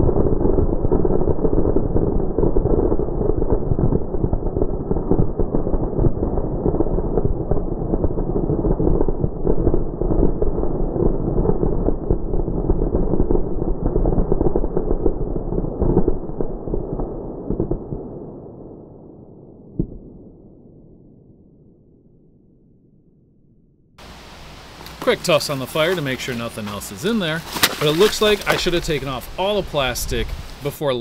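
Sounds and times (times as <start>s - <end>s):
firecrackers popping: 24.0s - 30.7s.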